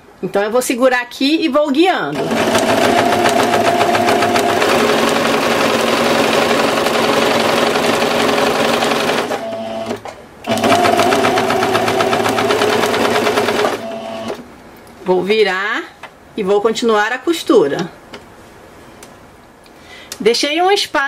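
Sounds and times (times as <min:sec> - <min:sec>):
sewing machine stitching: 0:02.2 - 0:14.4.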